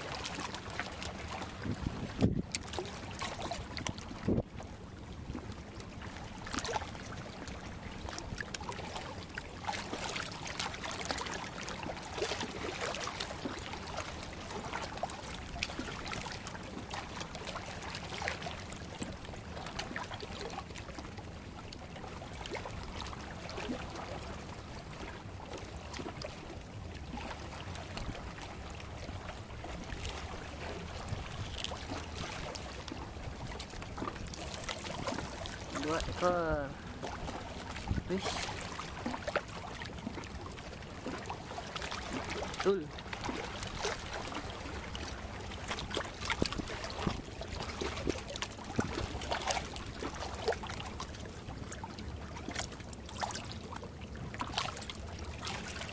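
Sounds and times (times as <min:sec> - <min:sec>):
seawater sloshing against concrete: 0:22.0 - 0:55.9.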